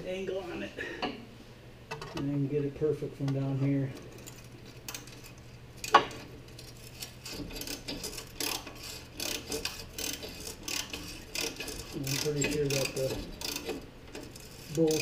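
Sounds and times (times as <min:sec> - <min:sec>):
ratchet clicking: 0:04.1 - 0:15.0.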